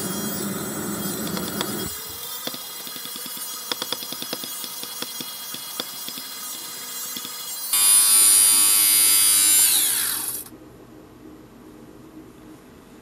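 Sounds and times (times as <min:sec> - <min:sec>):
lint remover motor whining: 0:00.0 - 0:02.6.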